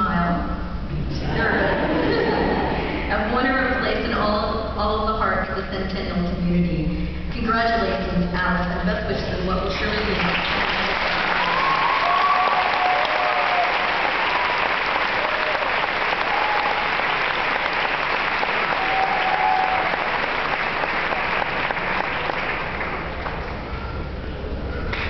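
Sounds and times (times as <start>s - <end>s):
audience applauding: 10.1s - 23.7s
high calls from audience: 11.0s - 22.9s.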